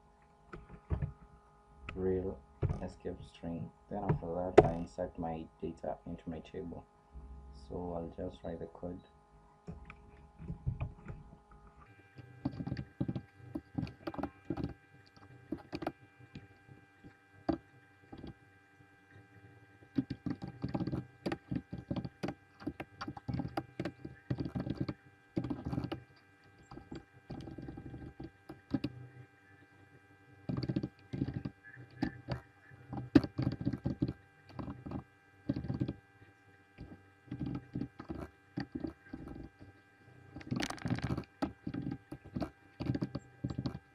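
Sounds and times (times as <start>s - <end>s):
electrical hum: 0.0s - 43.9s
keyboard typing: 12.4s - 14.7s, 20.0s - 26.0s, 30.5s - 36.0s.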